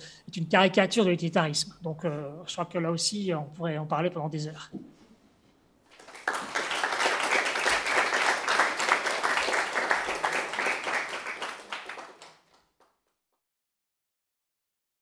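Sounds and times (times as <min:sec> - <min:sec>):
audience applauding: 0:05.9 - 0:12.9.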